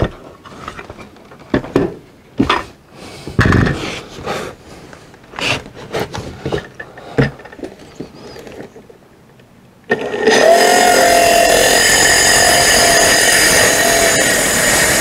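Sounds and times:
saw scraping on plywood: 10.2 - 15.0.

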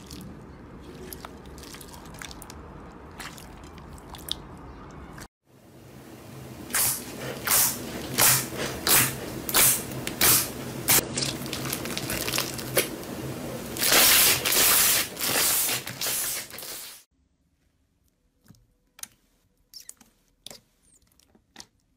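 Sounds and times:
slime squelching: 0.0 - 5.3, 10.9 - 13.0.

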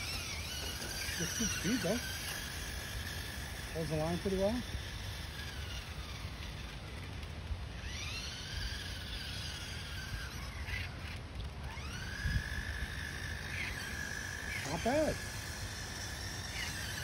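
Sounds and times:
electric motor whine: 0.0 - 17.0.

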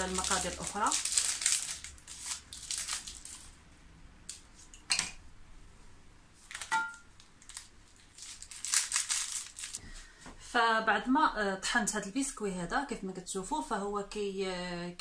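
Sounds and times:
plastic wrappers crinkling: 0.0 - 3.6, 6.4 - 9.8.

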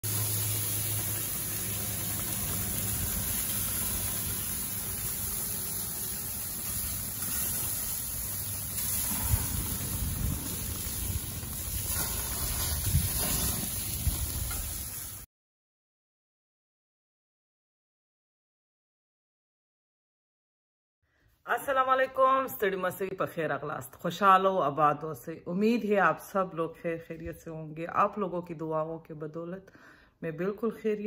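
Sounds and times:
kebabs sizzling on gas grill: 0.0 - 15.3.

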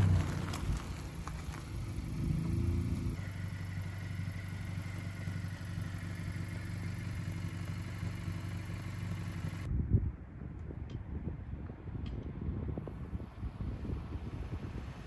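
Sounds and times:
car engine idling: 0.0 - 9.7.

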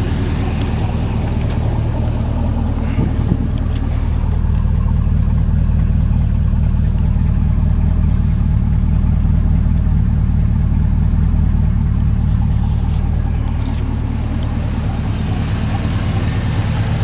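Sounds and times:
engine whir: 0.0 - 17.0
truck engine idling: 0.0 - 17.0.

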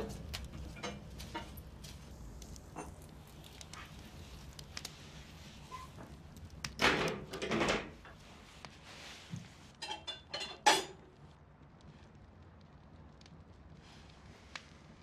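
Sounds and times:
wood fire crackling: 0.0 - 15.0
fireplace tool scraping: 7.4 - 9.8.

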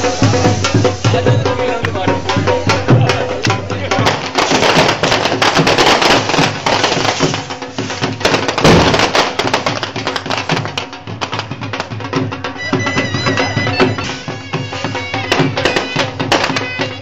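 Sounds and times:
firework bang: 0.0 - 11.9
firework crackling: 0.0 - 17.0
folk music playing: 0.0 - 17.0.

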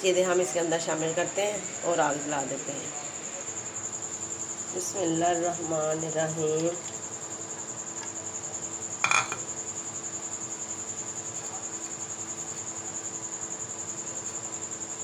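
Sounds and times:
cricket chirping: 3.4 - 15.0.

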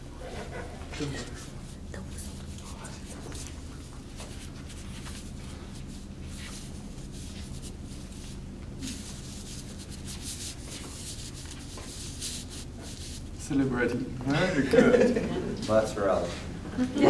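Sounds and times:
steady low hum: 0.0 - 17.0
brush scratching on paper: 0.2 - 13.5.

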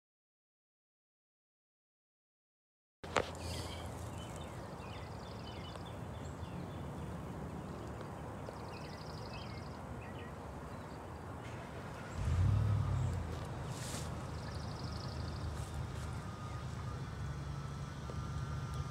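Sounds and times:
birds chirping and trilling: 3.2 - 17.3.

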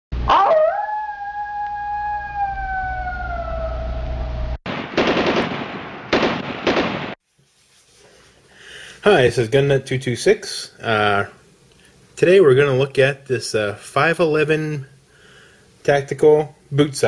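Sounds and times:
long wail: 0.2 - 4.6
low rumble: 2.7 - 4.6
automatic gunfire bursts: 4.7 - 7.2.

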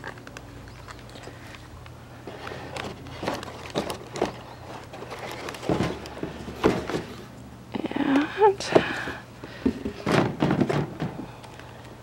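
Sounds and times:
packaging rustling: 2.3 - 7.2.

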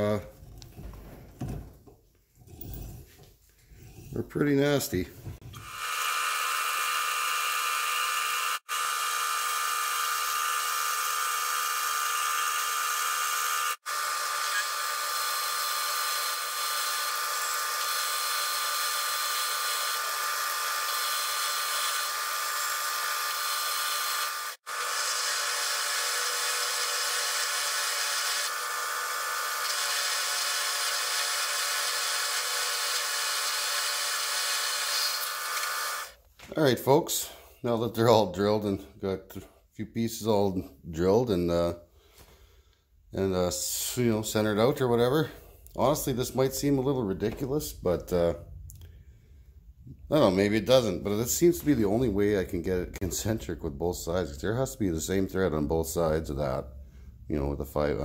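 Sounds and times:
drill drilling into metal: 5.5 - 36.2.

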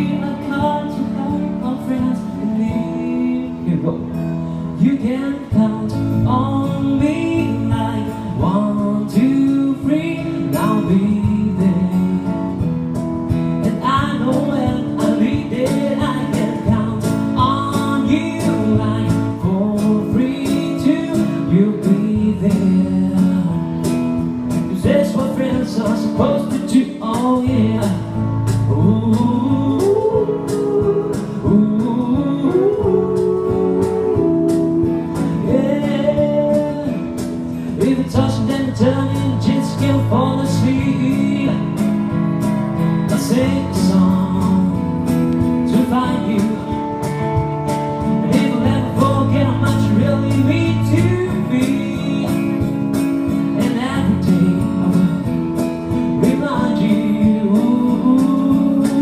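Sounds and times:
cajon beat: 0.0 - 4.2, 4.8 - 59.0
man singing: 0.0 - 59.0
strummed acoustic guitar: 0.0 - 59.0
keyboard chords: 27.6 - 56.2.

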